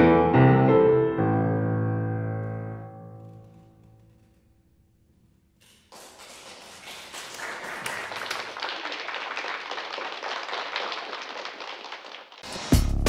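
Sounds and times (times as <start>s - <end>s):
audience applauding: 5.9s - 12.8s.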